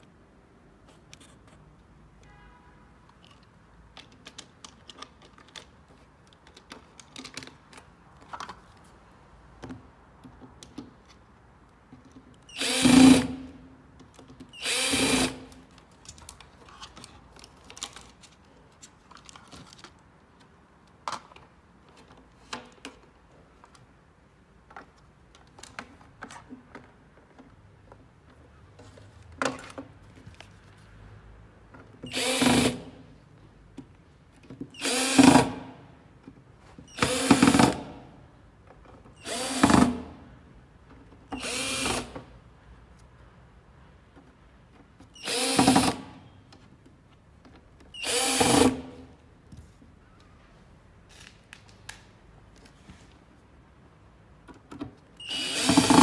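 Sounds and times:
cordless drill running: 12.6 - 13.4, 14.6 - 15.4, 39.2 - 39.9, 41.4 - 42.1, 45.2 - 46.0, 48.0 - 48.9, 55.3 - 56.0.

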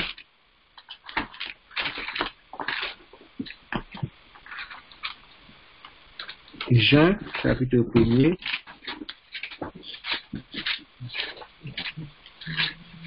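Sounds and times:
paper pages rustling: 0.8 - 5.2, 6.2 - 13.0.

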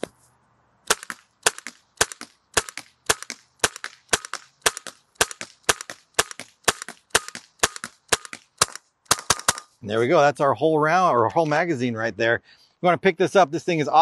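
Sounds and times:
air launcher firing pops: 0.9 - 9.7.

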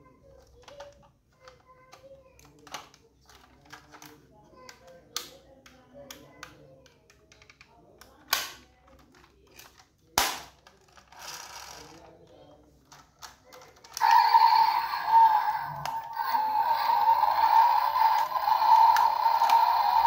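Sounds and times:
clicks of toy car handled: 0.4 - 12.0.

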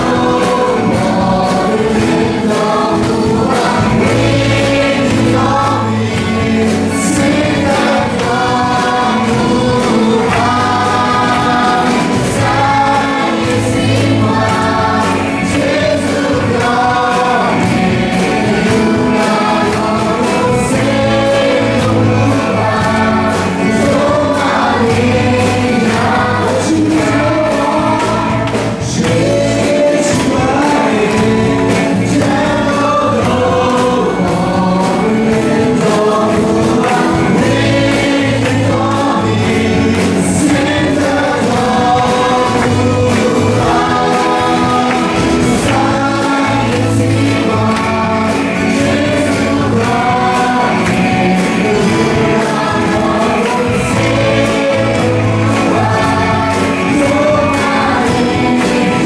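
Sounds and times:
drums: 0.0 - 59.0
group singing worship song: 0.0 - 59.0
guitar: 0.0 - 59.0.

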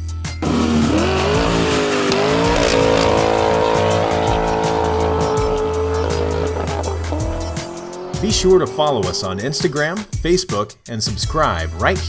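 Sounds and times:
car engine revving: 0.4 - 10.1.

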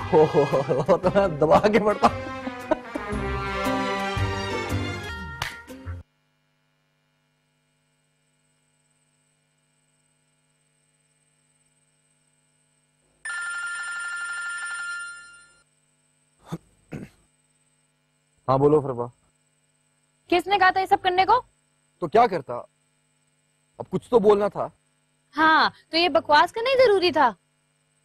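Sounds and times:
faint steady hum: 4.2 - 28.0
phone ringing: 13.2 - 15.6.

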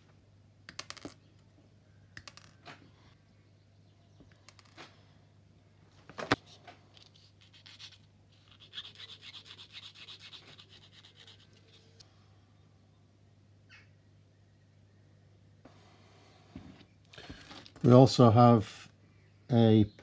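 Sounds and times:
sanding stick rubbing: 7.2 - 12.0.

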